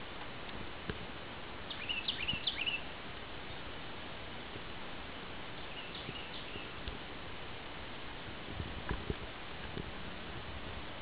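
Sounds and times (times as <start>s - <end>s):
bicycle tyres rolling hiss: 0.0s - 11.0s
songbird singing: 1.6s - 3.8s, 5.2s - 7.0s.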